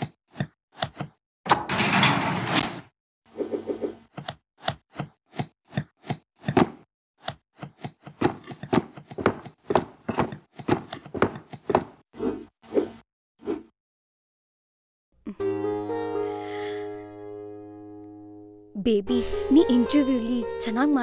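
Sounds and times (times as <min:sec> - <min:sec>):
cartoon box knocks and thumps: 0:00.0 - 0:02.8, 0:04.2 - 0:12.0.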